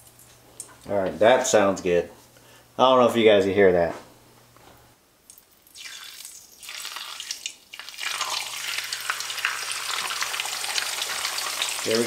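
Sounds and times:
fish sizzling in hot oil: 0:05.8 - 0:12.0.

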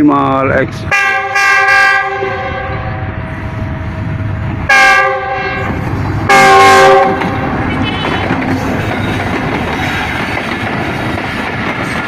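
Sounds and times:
train rumble: 0:00.0 - 0:12.0
locomotive air horn blasts: 0:00.9 - 0:02.9, 0:04.7 - 0:08.4.

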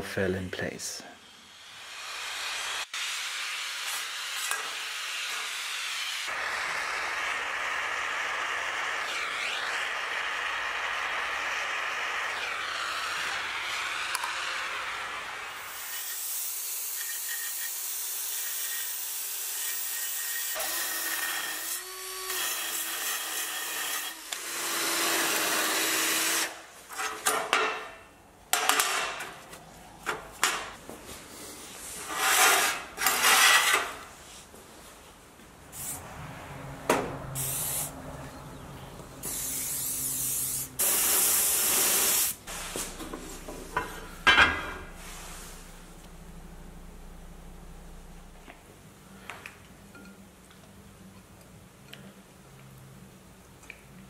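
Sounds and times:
steady hum: 0:42.4 - 0:49.2.

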